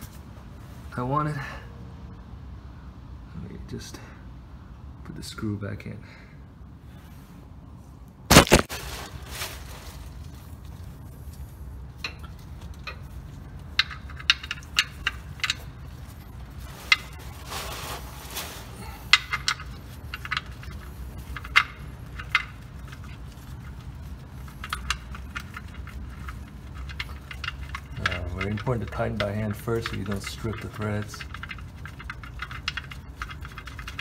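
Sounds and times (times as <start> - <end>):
short rustle: 8.3 - 11.6, 14.8 - 21.5
metal clicks and taps: 12.0 - 15.7.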